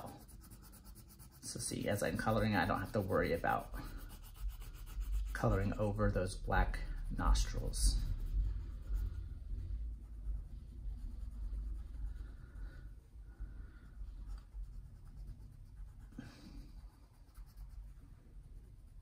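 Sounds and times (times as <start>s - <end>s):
crayon scraping on paper: 0.0s - 9.2s.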